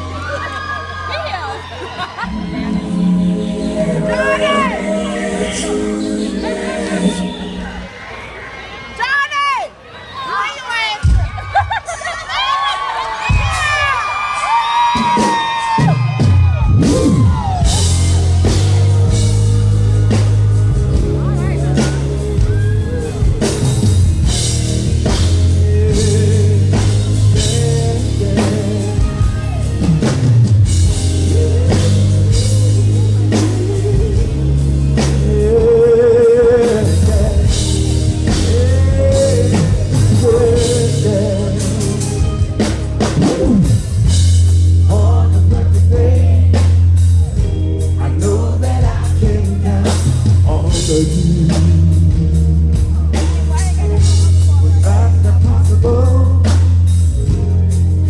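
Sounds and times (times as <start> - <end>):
band with drums and bass: 0.0 - 7.9, 10.7 - 58.0
man singing with vibrato: 2.2 - 7.8, 16.8 - 57.2.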